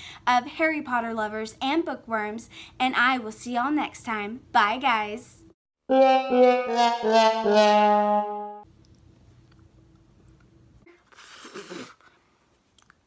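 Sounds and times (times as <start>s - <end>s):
brass music sting: 5.9s - 8.6s.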